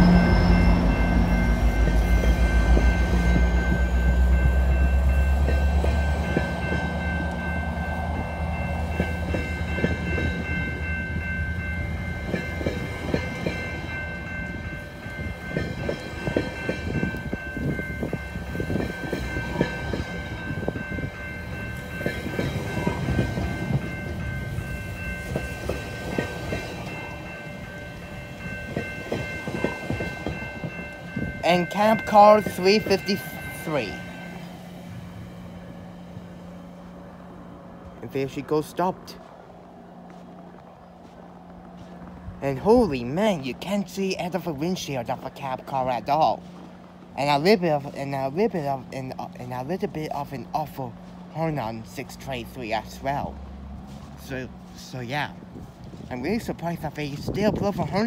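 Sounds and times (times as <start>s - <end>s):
train rumbling past: 0.0s - 58.0s.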